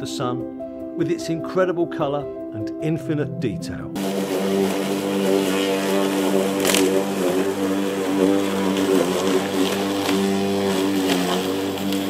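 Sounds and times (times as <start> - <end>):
lawnmower engine running: 4.0 - 12.0.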